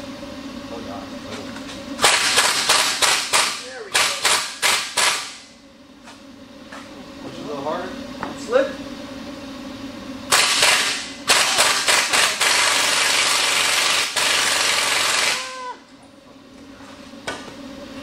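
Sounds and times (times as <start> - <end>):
pneumatic impact wrench rattling: 2.0 - 5.4, 10.3 - 15.5.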